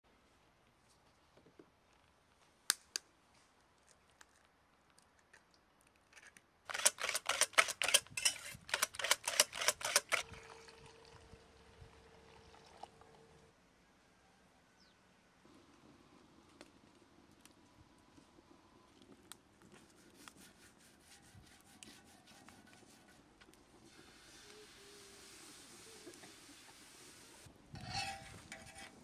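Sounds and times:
faint steady tone: 0:10.2 - 0:16.5.

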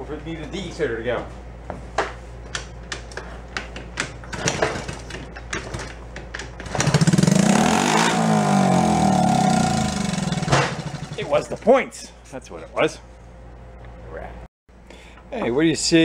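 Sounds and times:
engine kick-start clatter: 0:04.3 - 0:07.5, 0:09.8 - 0:11.4
small engine revving: 0:06.7 - 0:11.2.

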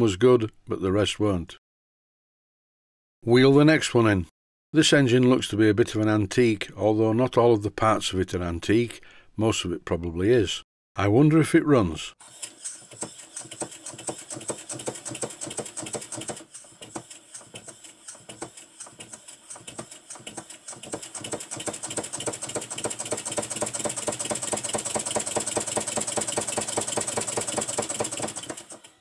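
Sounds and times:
steam engine clattering: 0:12.5 - 0:28.8.

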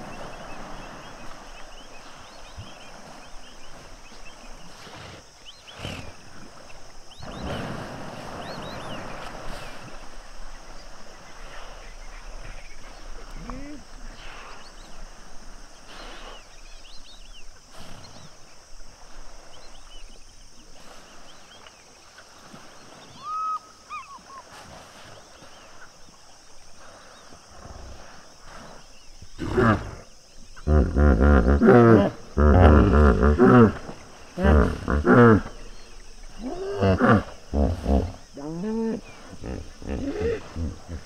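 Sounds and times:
hippopotamus honking grunts: 0:30.6 - 0:35.7.

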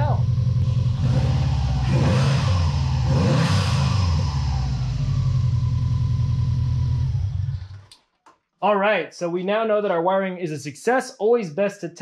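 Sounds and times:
car engine revving and idling: 0:00.0 - 0:07.9.

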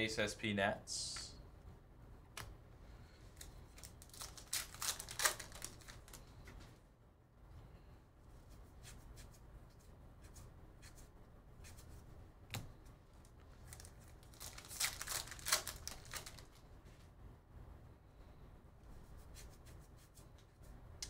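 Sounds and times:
wrapper tearing and crinkling: 0:03.8 - 0:06.2, 0:13.7 - 0:16.6.

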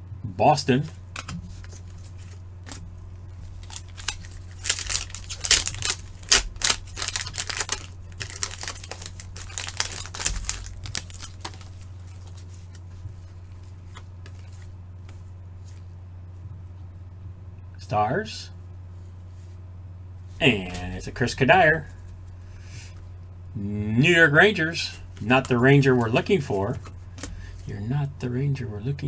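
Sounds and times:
low hum: 0:00.0 - 0:29.0
cards flipping clicks and rustles: 0:01.1 - 0:15.9.

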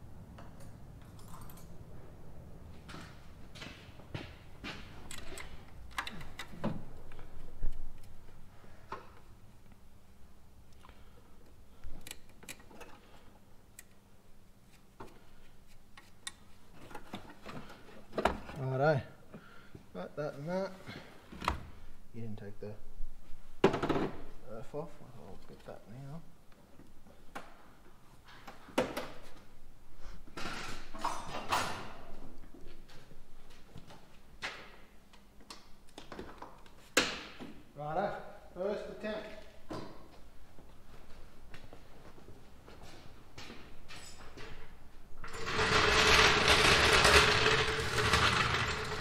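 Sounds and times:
metal tools clanking and scraping: 0:45.2 - 0:49.0.

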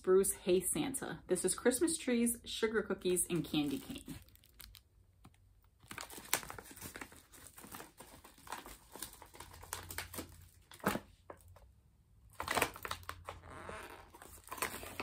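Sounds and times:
paper bag crinkling: 0:03.3 - 0:04.9, 0:05.8 - 0:11.0, 0:12.3 - 0:15.0.

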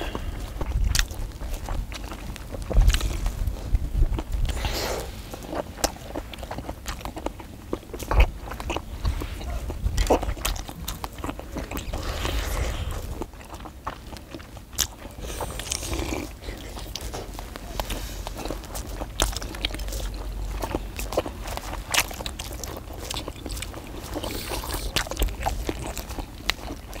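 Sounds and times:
people chewing: 0:00.0 - 0:27.0.

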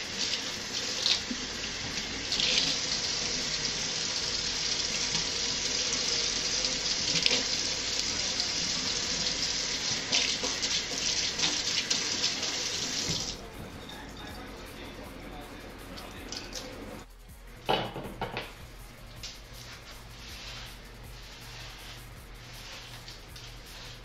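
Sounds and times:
faucet running into metal sink: 0:00.0 - 0:13.4.

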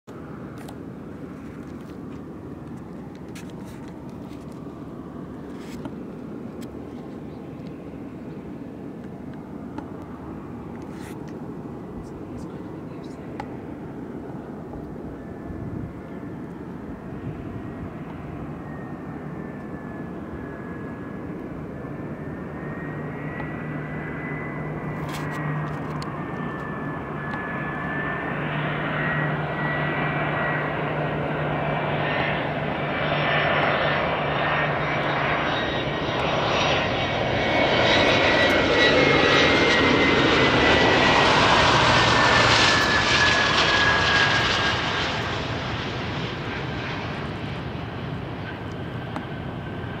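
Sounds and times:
jet airliner rumble with high whine: 0:00.1 - 0:50.0.

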